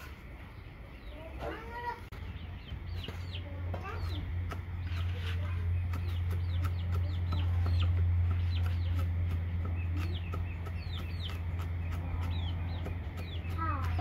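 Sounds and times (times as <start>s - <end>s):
bird chirps: 0.0s - 14.0s
steady low hum: 0.0s - 14.0s
cleaver chopping on wooden block: 5.7s - 14.0s.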